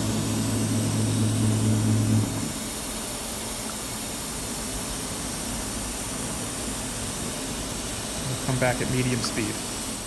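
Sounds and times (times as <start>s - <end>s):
machine low hum: 0.0s - 3.1s
hiss of running equipment: 0.0s - 10.0s.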